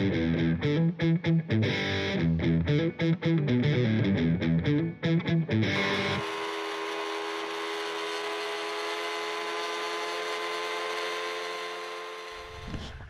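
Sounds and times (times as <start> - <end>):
boat motor whining: 5.8 - 13.0.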